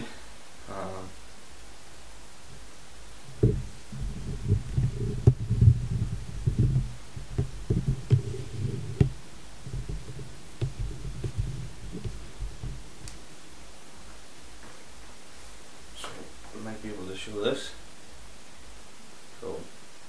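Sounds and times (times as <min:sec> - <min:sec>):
soft handling knocks: 0:03.3 - 0:13.2.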